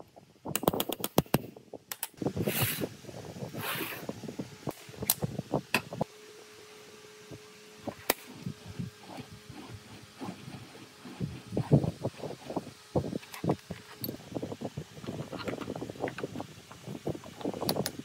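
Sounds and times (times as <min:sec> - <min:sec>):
faint steady hum: 0:00.0 - 0:18.0
sharp clicks: 0:00.5 - 0:02.2.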